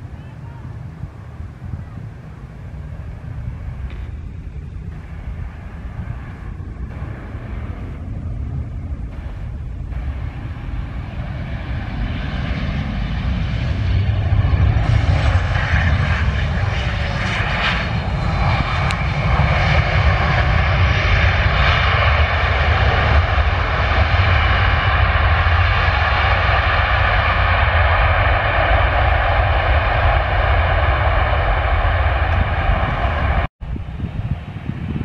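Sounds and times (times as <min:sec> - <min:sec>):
deep rumble: 0:00.0 - 0:35.0
jet engines roaring: 0:00.0 - 0:35.0.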